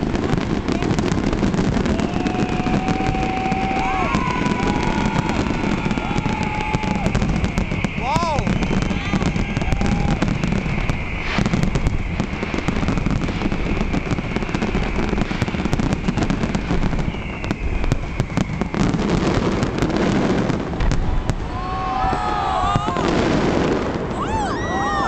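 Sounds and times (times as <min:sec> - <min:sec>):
fireworks bursting and crackling: 0:00.0 - 0:25.0
high steady whistle: 0:01.6 - 0:19.4.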